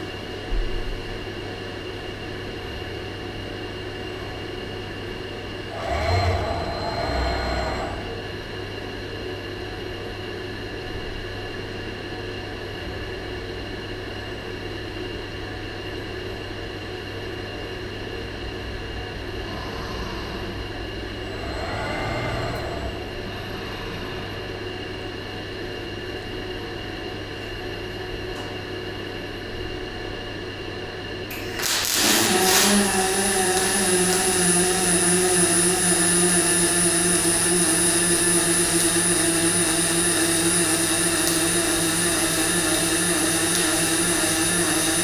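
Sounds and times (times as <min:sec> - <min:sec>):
low electrical hum: 0:00.0 - 0:45.0
motor whine: 0:03.8 - 0:09.8, 0:17.6 - 0:28.4, 0:31.3 - 0:45.0
robot whining tones: 0:05.7 - 0:08.3, 0:19.4 - 0:24.6, 0:32.0 - 0:45.0.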